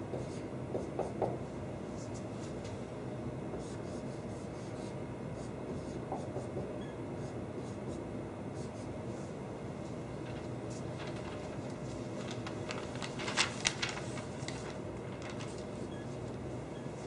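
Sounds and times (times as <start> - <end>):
steady low hum: 0.0 - 17.0
marker scratching on whiteboard: 0.1 - 1.3, 3.5 - 8.0.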